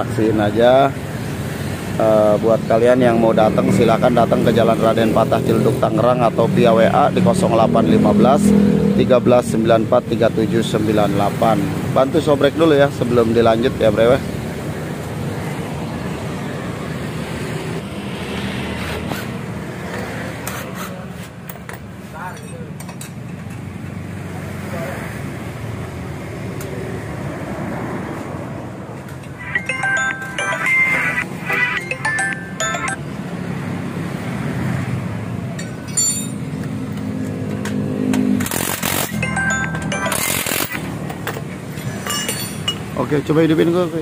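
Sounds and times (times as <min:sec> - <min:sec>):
metallic clinks: 0:35.6 - 0:36.6, 0:41.8 - 0:42.9.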